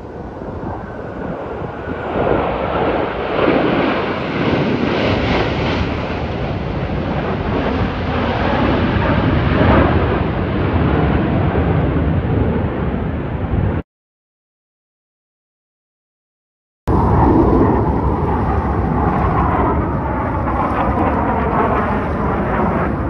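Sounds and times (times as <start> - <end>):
jet engines flying overhead: 0.0 - 13.8, 16.9 - 23.0
wind buffeting microphone: 0.0 - 13.8, 16.9 - 23.0.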